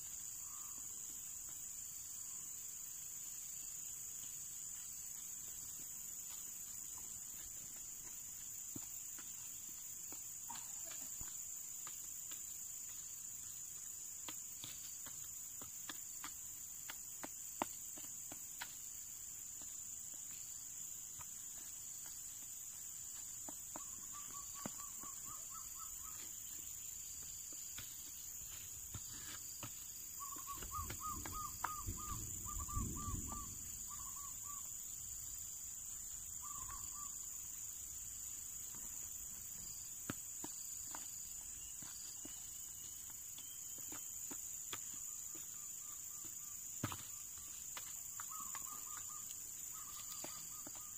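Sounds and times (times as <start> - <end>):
insects droning: 0.0 - 50.9
bird chirping: 23.6 - 37.6, 44.9 - 50.9.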